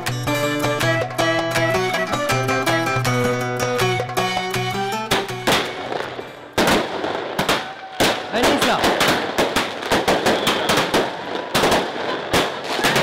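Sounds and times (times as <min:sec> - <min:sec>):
fireworks sharp bangs: 0:05.4 - 0:13.0
fireworks crackling: 0:05.5 - 0:13.0.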